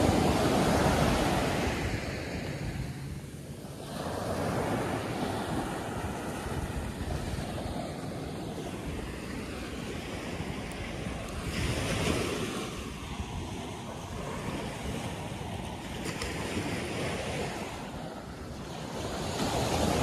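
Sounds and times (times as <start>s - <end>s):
ocean surf on sandy beach: 0.0s - 20.0s
wind buffeting microphone: 0.0s - 20.0s.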